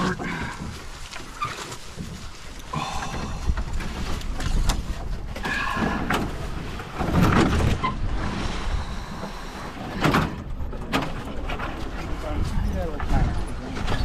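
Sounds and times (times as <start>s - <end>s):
footsteps through dry brush: 0.0s - 3.0s
branches scraping: 0.0s - 14.0s
low rumble on microphone: 0.0s - 14.0s.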